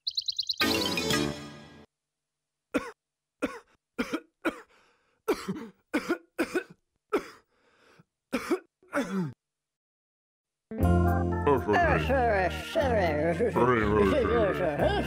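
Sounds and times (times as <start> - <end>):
cartoon character coughing: 2.8 - 4.7, 5.3 - 7.4, 8.4 - 9.4.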